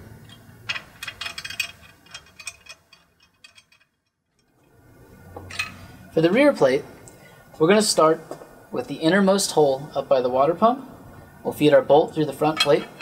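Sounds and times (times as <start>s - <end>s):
metallic ticks and clinks: 0.2s - 4.5s.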